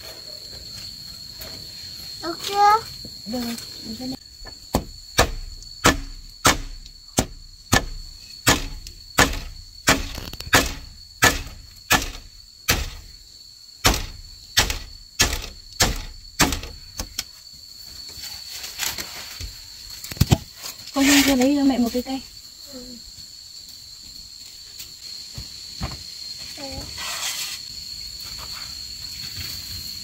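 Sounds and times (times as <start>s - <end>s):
insects shrilling: 0.0s - 30.0s
hammer knocking nail into bamboo: 4.7s - 13.0s.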